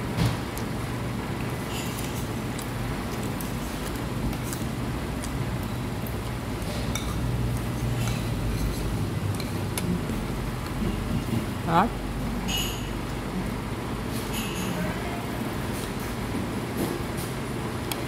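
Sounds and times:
steady low hum: 0.0 - 18.0
cutlery and dishes clinking: 14.3 - 14.8.

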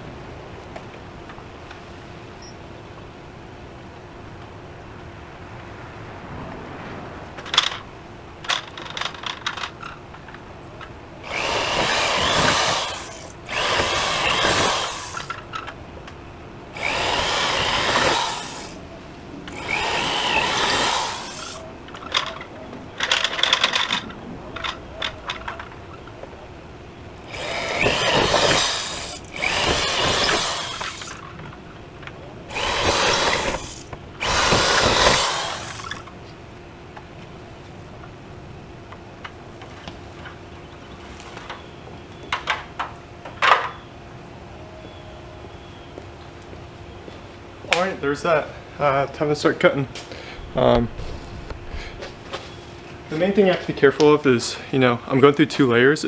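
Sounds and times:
power drill boring through metal: 11.2 - 15.4, 16.7 - 18.8, 19.5 - 21.6, 27.1 - 31.2, 32.5 - 36.0.

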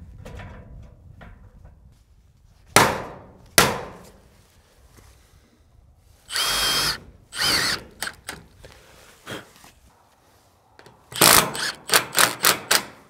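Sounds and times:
cordless drill bursts: 6.3 - 8.4, 11.2 - 12.8.

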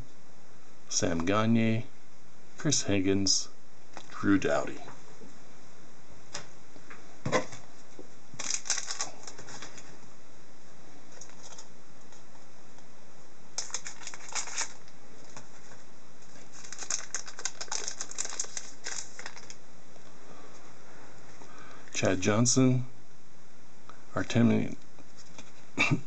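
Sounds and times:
card pack wrapper crinkling: 8.4 - 9.9, 13.6 - 19.6
cards being handled: 8.4 - 9.9, 13.6 - 19.6, 25.0 - 25.6.

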